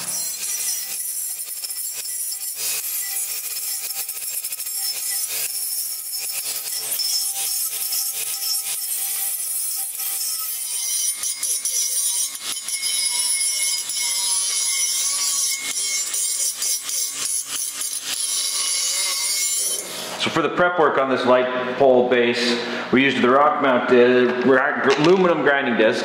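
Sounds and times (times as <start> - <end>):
angle grinder grinding metal: 0.0 - 20.5.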